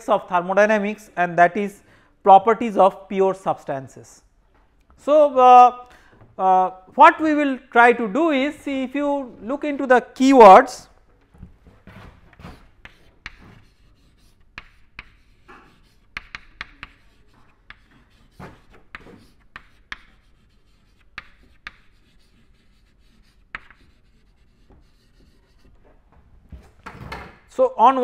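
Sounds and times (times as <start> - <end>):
chalk tapping and scratching: 11.9 - 25.9.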